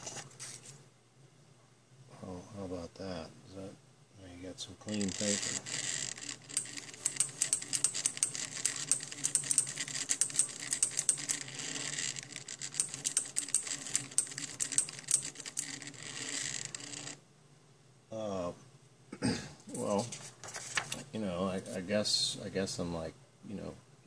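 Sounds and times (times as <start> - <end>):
rapid mechanical clicks: 4.9 - 17.2.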